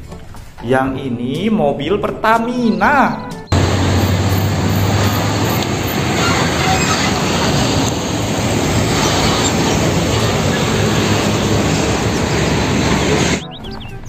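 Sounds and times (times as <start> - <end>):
low engine hum: 3.5 - 13.5
truck driving past: 3.5 - 13.5.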